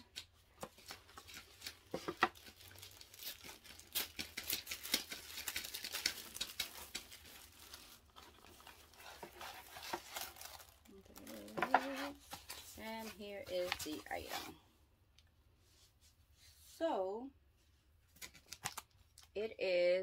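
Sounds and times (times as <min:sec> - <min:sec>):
tissue paper rustling: 0:00.7 - 0:14.6.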